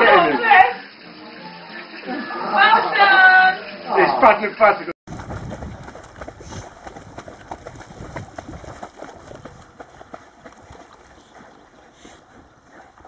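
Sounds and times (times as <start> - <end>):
dogs paddling splashes: 5.1 - 13.0
water sloshing: 5.1 - 13.0.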